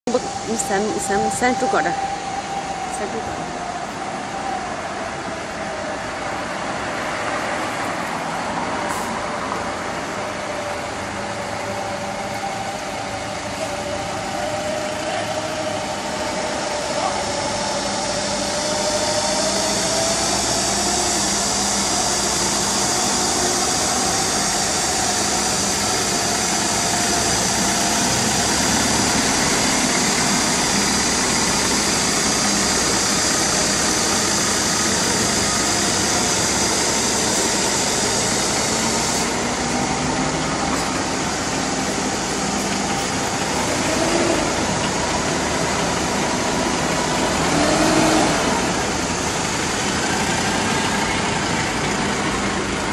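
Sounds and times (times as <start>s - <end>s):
truck engines running: 0.0s - 52.9s.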